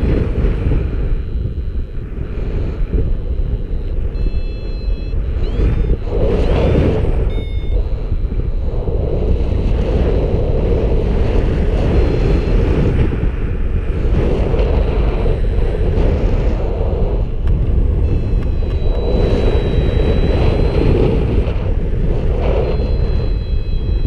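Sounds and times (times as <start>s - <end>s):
wind buffeting microphone: 0.0s - 24.0s
high beeps: 3.6s - 8.8s, 17.8s - 24.0s.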